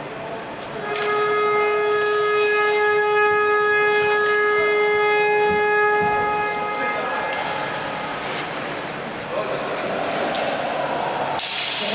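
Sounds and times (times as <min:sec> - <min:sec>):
horn blast: 0:00.8 - 0:08.5.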